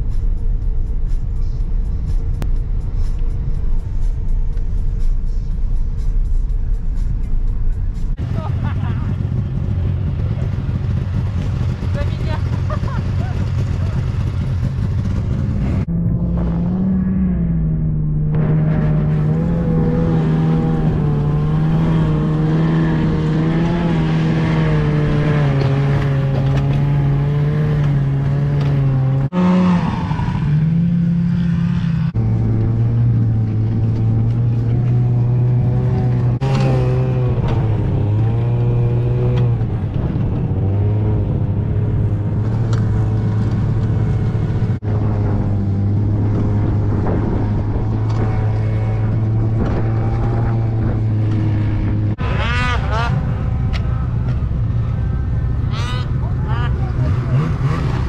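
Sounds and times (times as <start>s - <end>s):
snowmobile engine running: 8.2s - 58.0s.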